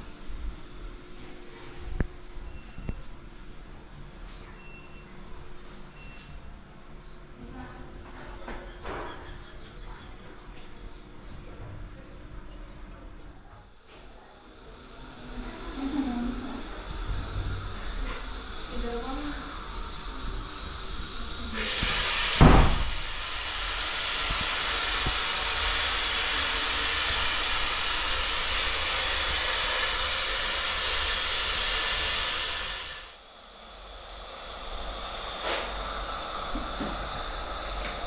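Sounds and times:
loud steady hiss: 14.6 - 38.0
sharp thump: 22.4 - 22.9.

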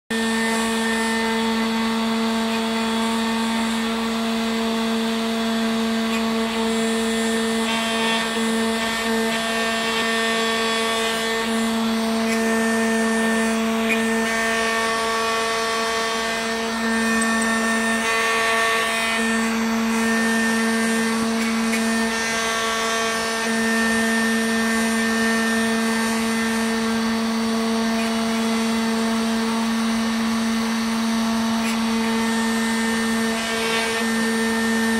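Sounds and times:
router spindle motor whining: 0.1 - 34.9.

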